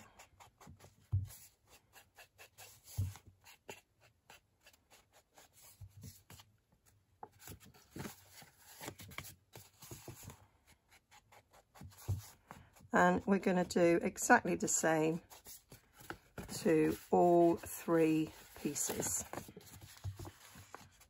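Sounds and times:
paper rustling: 7.2 - 10.5, 15.2 - 21.0
sponge dauber scuffing paper: 15.1 - 21.0.

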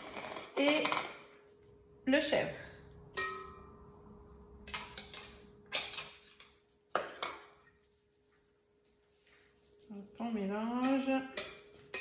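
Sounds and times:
utensil clinking on metal bowl: 10.7 - 12.0.

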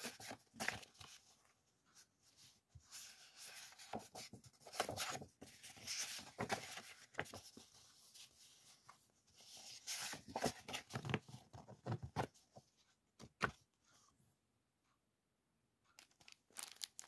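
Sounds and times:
paper rustling and sliding: 2.8 - 12.3.

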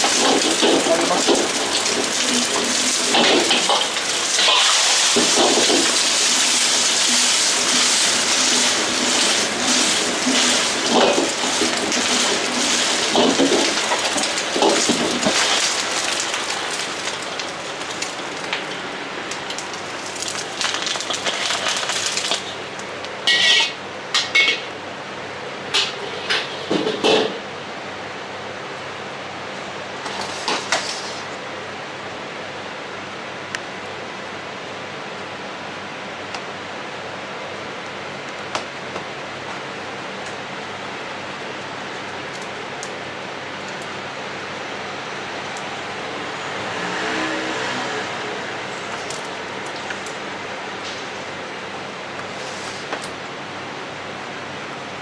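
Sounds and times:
eggs sizzling in hot oil: 0.0 - 18.5, 19.3 - 23.6
metal ladle scraping wok: 2.9 - 13.4, 23.2 - 24.6.

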